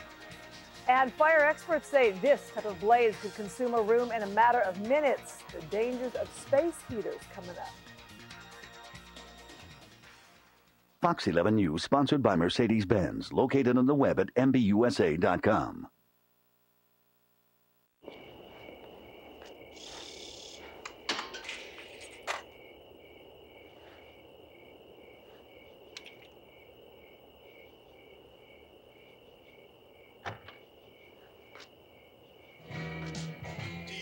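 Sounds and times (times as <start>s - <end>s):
crickets chirping: 0.0s - 10.0s, 17.2s - 34.0s
faint night ambience: 0.0s - 34.0s.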